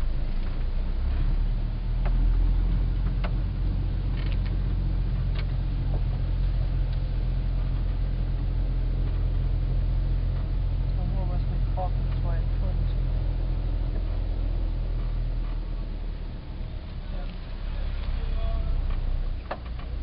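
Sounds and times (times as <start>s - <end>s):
van engine running: 0.0s - 20.0s
clicks and rattles: 4.1s - 9.5s.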